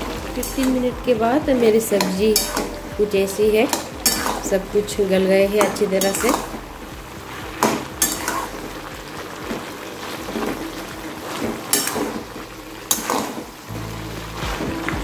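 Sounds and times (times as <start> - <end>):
vegetables hissing in a pan: 0.0 - 15.0
metal spatula scraping a pan: 1.9 - 4.9, 7.6 - 8.7, 11.4 - 13.6.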